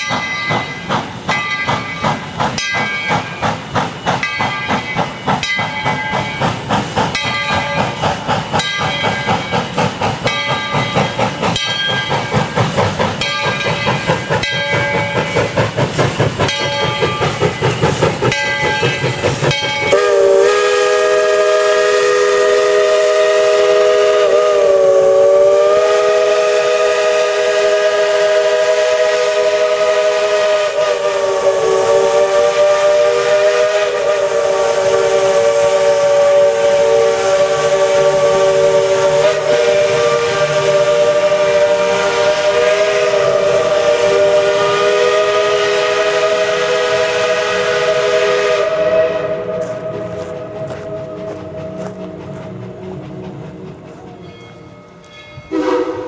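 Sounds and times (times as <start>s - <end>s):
steady steam hiss: 0.0s - 56.0s
steam locomotive chuffing: 0.0s - 56.0s
steam whistle: 19.8s - 53.0s, 55.5s - 56.0s.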